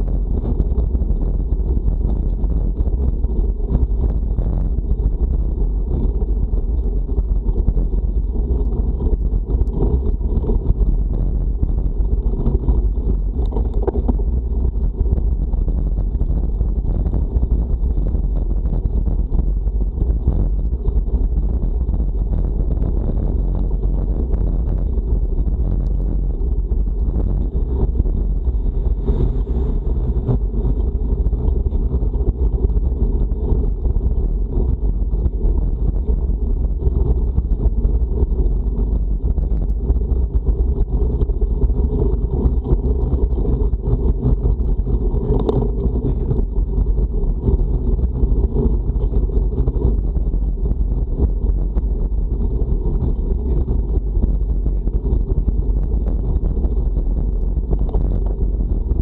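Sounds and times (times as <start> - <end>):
wind rumble on microphone: 0.0 - 59.0.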